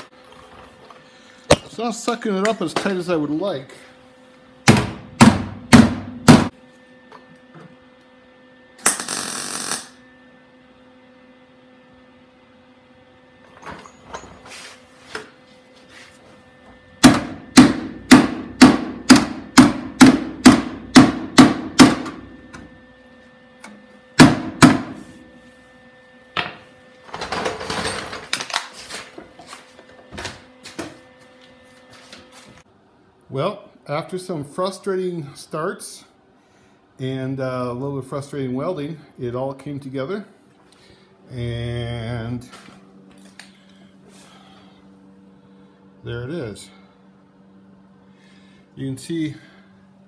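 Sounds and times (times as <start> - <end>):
faint steady hum: 30.7 - 50.0.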